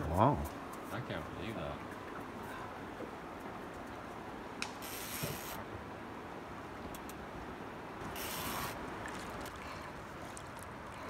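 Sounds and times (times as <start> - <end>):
brief hiss: 4.8 - 5.6, 8.1 - 8.8.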